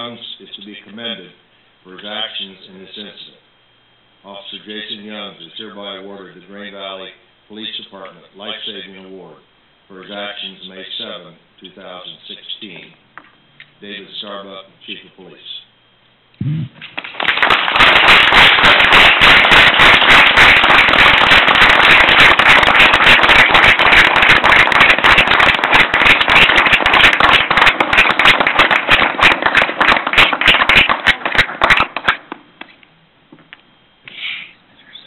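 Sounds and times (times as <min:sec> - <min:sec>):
loud applause: 0:17.0 - 0:32.2.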